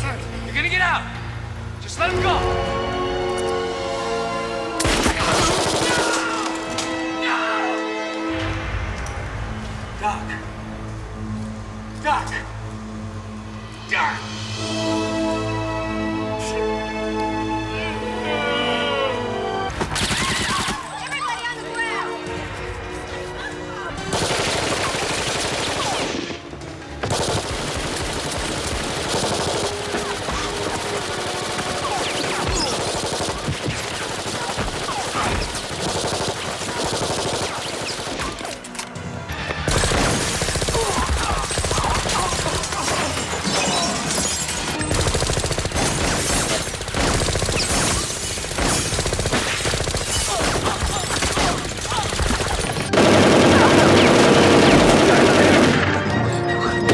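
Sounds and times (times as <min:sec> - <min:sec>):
soundtrack music: 0:00.0 - 0:56.9
submachine gun bursts: 0:44.7 - 0:50.4.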